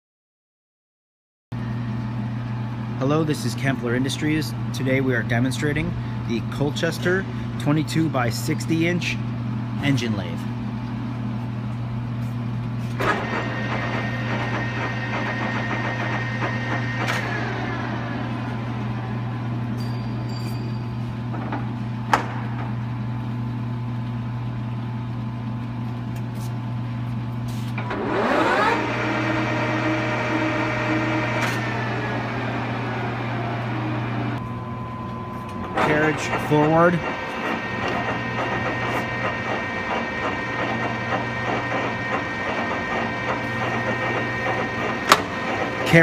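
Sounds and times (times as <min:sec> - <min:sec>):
low machine hum: 0:01.6 - 0:46.0
lathe spindle gear whine: 0:13.0 - 0:21.4, 0:27.8 - 0:46.0.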